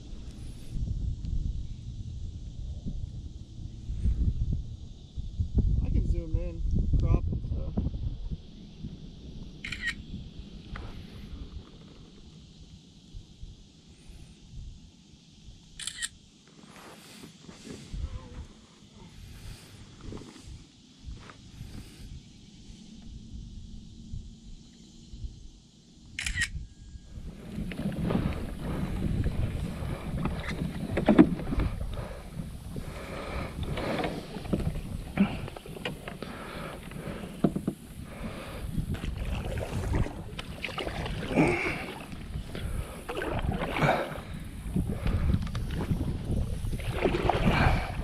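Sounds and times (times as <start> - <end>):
kayak hull swishing through pads: 27.1 - 48.0
small water splashes: 38.9 - 44.5, 45.7 - 48.0.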